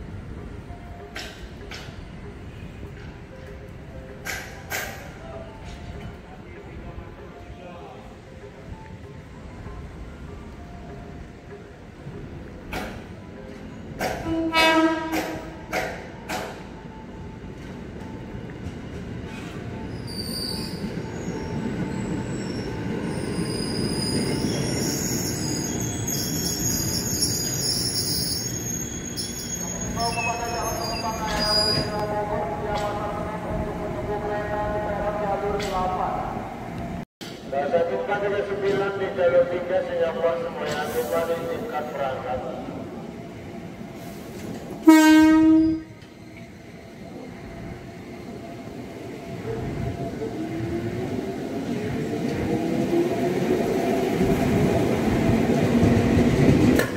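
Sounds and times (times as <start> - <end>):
train horn blast: 14.2 - 15.6, 44.8 - 46.0
wheel squeal: 19.9 - 31.9.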